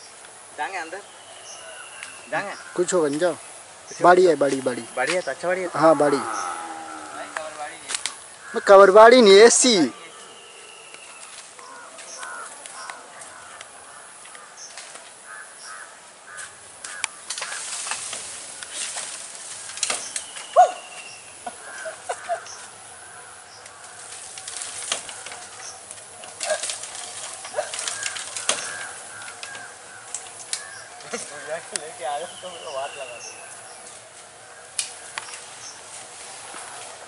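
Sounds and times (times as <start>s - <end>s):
bamboo rustling and snapping: 7.3s - 8.5s, 10.9s - 15.2s, 16.3s - 22.8s, 23.6s - 32.0s, 33.5s - 37.0s
bird chirps: 19.9s - 22.7s, 30.6s - 33.9s.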